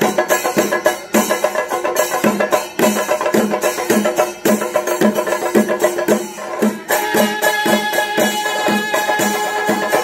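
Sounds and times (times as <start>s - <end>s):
temple drum beat: 0.0s - 10.0s
wind instrument holding high note: 6.9s - 10.0s.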